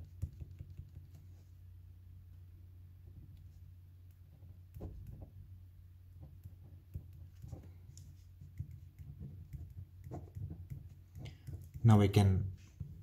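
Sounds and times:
low steady hum: 0:00.0 - 0:13.0
pen scratching on paper: 0:06.4 - 0:11.8.

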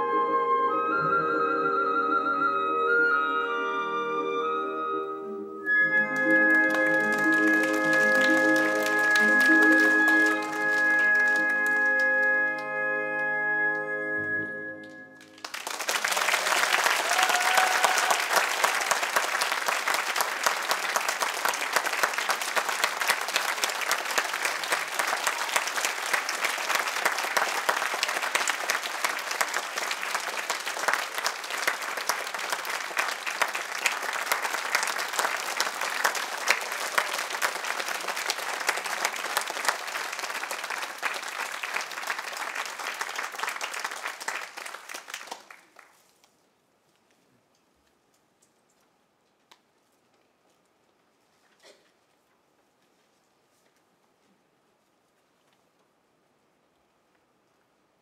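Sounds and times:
audience applauding: 0:05.8 - 0:12.7, 0:14.8 - 0:46.0.

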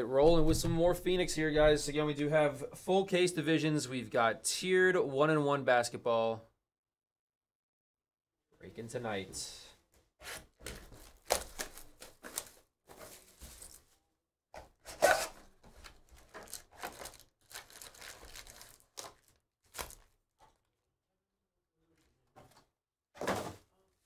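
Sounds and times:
tearing and crinkling packaging: 0:10.9 - 0:13.9, 0:14.9 - 0:20.2.

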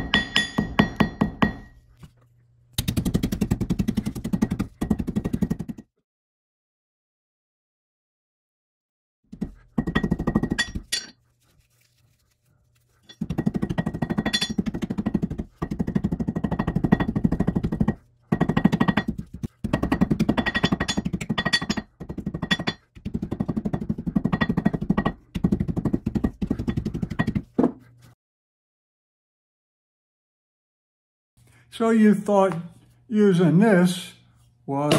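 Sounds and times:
hammer striking metal anvil: 0:00.0 - 0:01.8.

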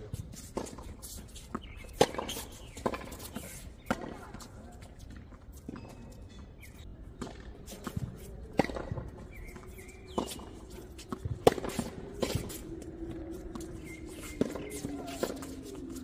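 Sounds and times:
footsteps on court: 0:00.0 - 0:16.0
tennis ball bouncing on hard court: 0:07.2 - 0:12.6
tennis ball struck by racket: 0:07.2 - 0:12.6.

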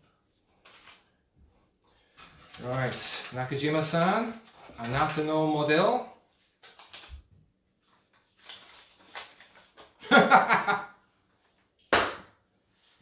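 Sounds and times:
man laughing: 0:10.0 - 0:11.0.

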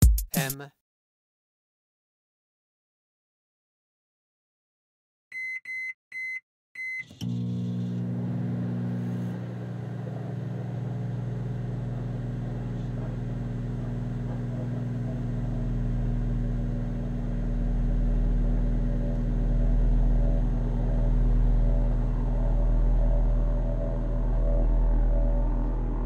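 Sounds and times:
microwave keypad beeps: 0:05.3 - 0:07.1
microwave oven humming: 0:07.1 - 0:26.0
deep rumble: 0:15.3 - 0:26.0.

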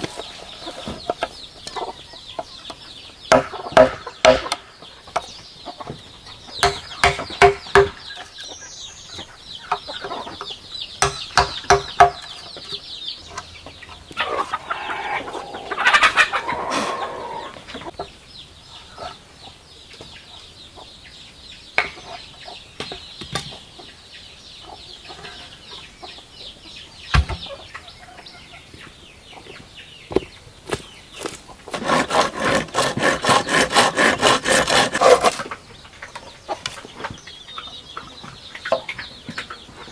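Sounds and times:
chickens clucking: 0:00.0 - 0:39.9
hand saw cutting bamboo: 0:31.7 - 0:35.5.

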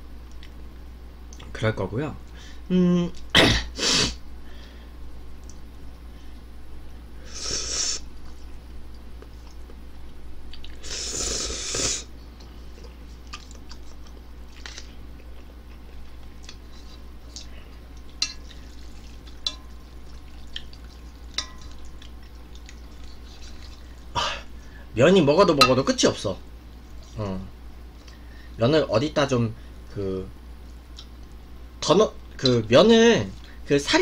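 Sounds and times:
chewing: 0:08.2 - 0:10.8, 0:12.4 - 0:24.1
slurping noodles: 0:10.8 - 0:12.1.

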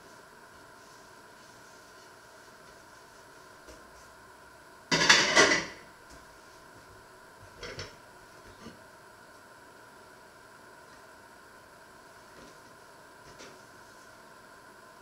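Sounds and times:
plates knocking onto a stack: 0:04.9 - 0:05.8.

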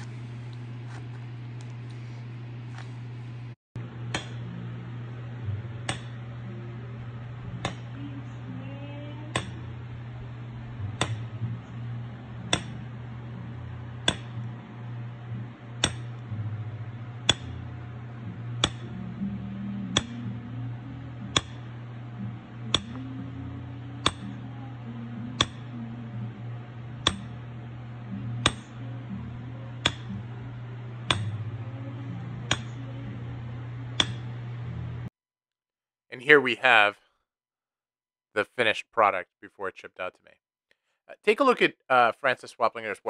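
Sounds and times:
steady low hum: 0:00.0 - 0:35.1
hammer tapping metal tool: 0:04.1 - 0:04.5, 0:05.8 - 0:06.3, 0:09.3 - 0:09.6, 0:10.9 - 0:11.3, 0:12.5 - 0:12.9, 0:14.0 - 0:14.5, 0:15.8 - 0:16.2, 0:17.2 - 0:17.6, 0:18.6 - 0:19.0, 0:19.9 - 0:20.4, 0:21.3 - 0:21.7, 0:22.7 - 0:23.1, 0:24.0 - 0:24.4, 0:25.4 - 0:25.7, 0:27.0 - 0:27.4, 0:28.4 - 0:28.8, 0:29.8 - 0:30.2, 0:31.0 - 0:31.4, 0:32.5 - 0:32.8, 0:34.0 - 0:34.4.

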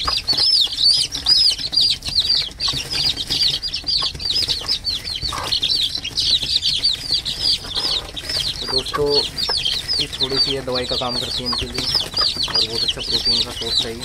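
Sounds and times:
chicks peeping: 0:00.0 - 0:14.0
fluttering and scuffling: 0:00.0 - 0:14.0.

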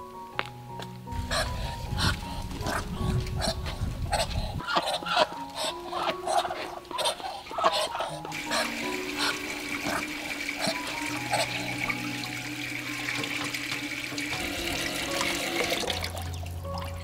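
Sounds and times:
tap water running into sink: 0:08.3 - 0:17.0.

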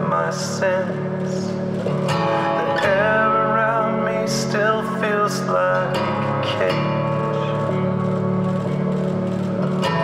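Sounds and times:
acoustic guitar: 0:00.0 - 0:10.0
person singing: 0:02.5 - 0:07.6.

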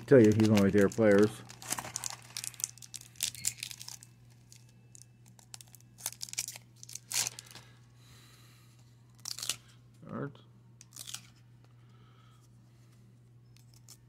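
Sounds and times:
foil wrapper crinkling: 0:00.0 - 0:07.8, 0:09.1 - 0:09.7.

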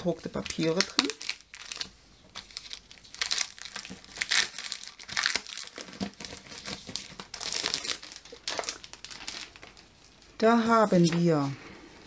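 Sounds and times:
paper sheets rustling: 0:01.6 - 0:09.8.

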